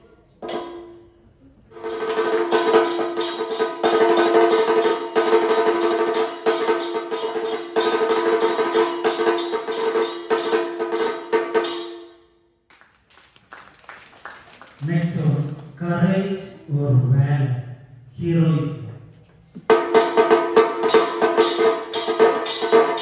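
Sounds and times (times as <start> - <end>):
jingling metal percussion: 0.4 - 12.3, 19.7 - 23.0.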